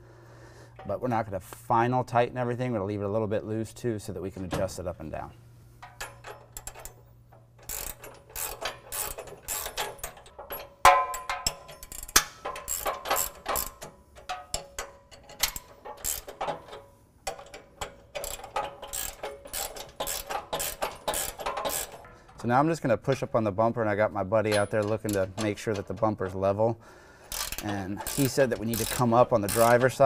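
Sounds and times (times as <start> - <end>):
ratcheting wrench clicking: 5.8 - 22.1, 27.2 - 30.0
metallic clank: 5.8 - 22.5.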